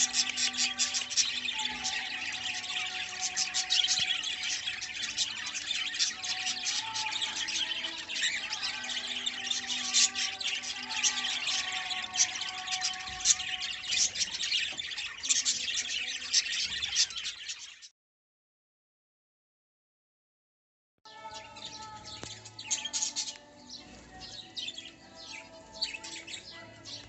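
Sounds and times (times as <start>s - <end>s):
budgerigars chattering: 0.0s - 17.8s.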